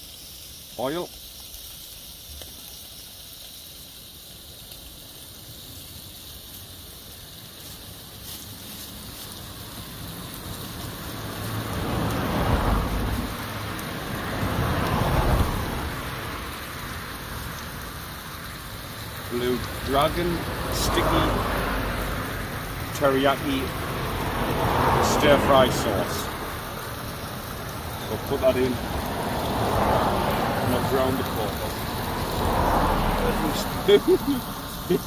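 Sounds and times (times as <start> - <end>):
vehicles passing close by: 4.6 - 35.0
steady background hiss: 12.8 - 35.0.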